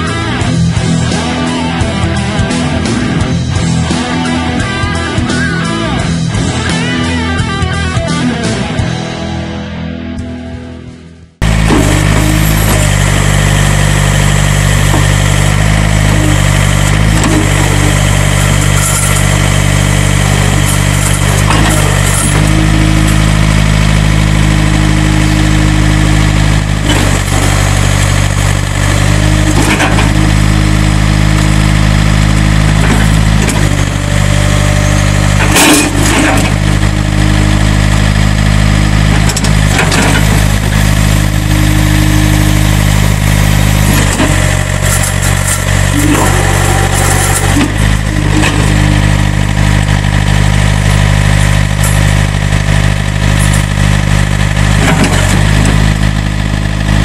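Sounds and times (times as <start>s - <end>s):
diesel engine running: 0.0s - 57.0s
loader hydraulics working: 11.4s - 57.0s.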